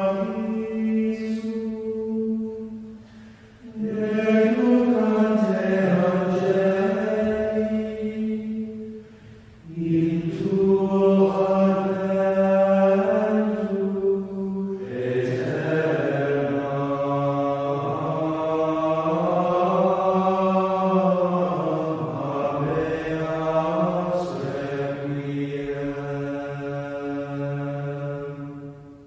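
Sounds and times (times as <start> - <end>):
low voices chanting: 0.0 - 29.0.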